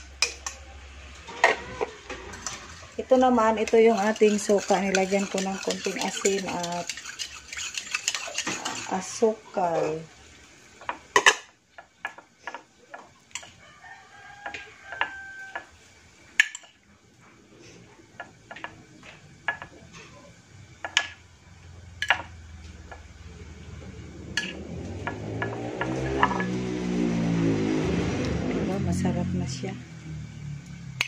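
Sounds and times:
engine rumble: 0:00.0 - 0:06.9, 0:17.2 - 0:31.0
rooster crowing: 0:01.2 - 0:03.0, 0:13.4 - 0:15.9.

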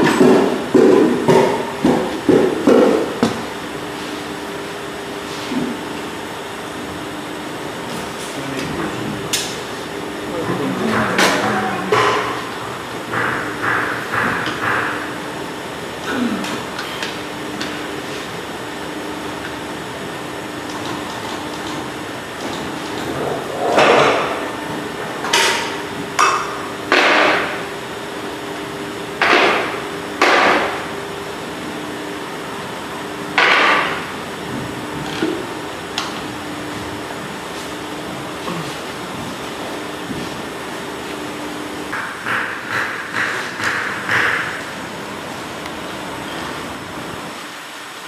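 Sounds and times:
crimping machine humming: 0:00.0 - 0:48.0
loud metallic knocks and clanks: 0:10.9 - 0:15.2.

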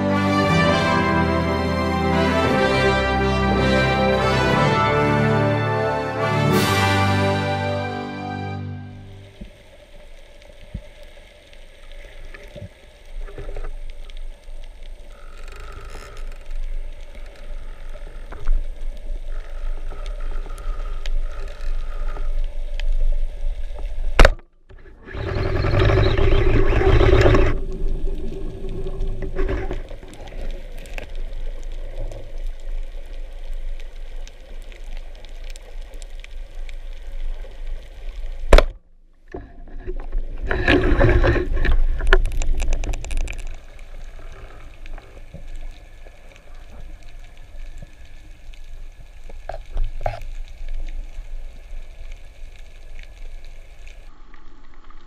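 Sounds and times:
underwater water rush: 0:00.0 - 0:55.0
dense bubbling: 0:24.8 - 0:30.4
faint hums: 0:24.8 - 0:38.1.

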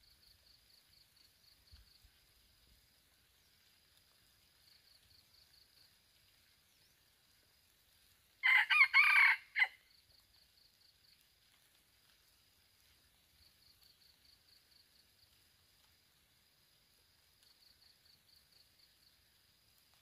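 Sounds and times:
faint pulsing insect trill: 0:00.0 - 0:20.0
rooster crowing: 0:08.4 - 0:09.8.

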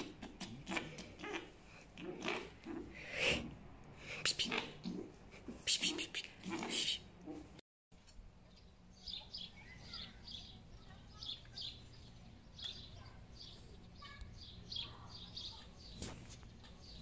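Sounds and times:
small birds chirping: 0:08.0 - 0:17.0.

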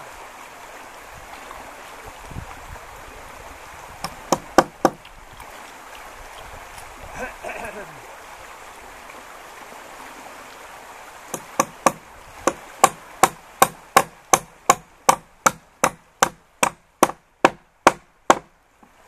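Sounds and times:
hammer blows on wood: 0:11.3 - 0:18.5.

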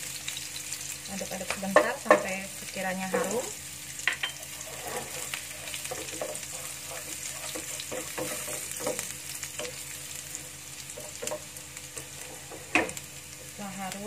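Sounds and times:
shallots sizzling in oil: 0:00.0 - 0:14.0
wooden spatula scraping pan: 0:04.3 - 0:09.8, 0:11.0 - 0:13.0.

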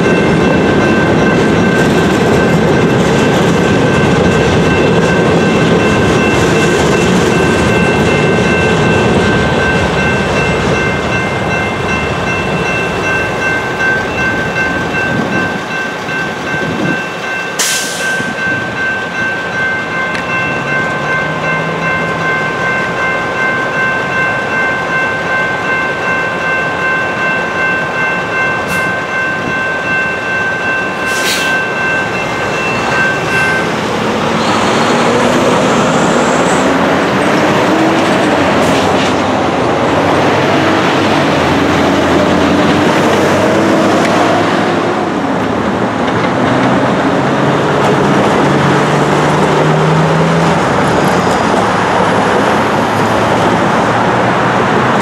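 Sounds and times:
electronic crossing bells ringing: 0:00.0 - 0:44.0
road noise: 0:00.0 - 0:55.0
vehicles accelerating: 0:31.8 - 0:55.0.

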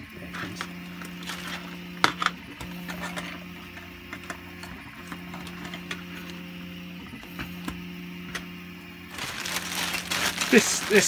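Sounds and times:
steady hum: 0:00.0 - 0:11.0
plastic bag crinkling: 0:09.1 - 0:11.0.

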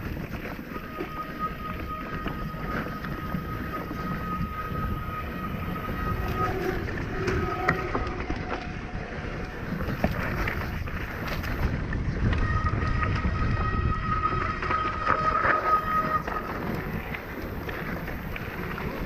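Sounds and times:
bike rattling over rough ground: 0:00.0 - 0:19.0
wind rushing over microphone: 0:00.0 - 0:19.0
thin high buzz: 0:00.5 - 0:11.6.

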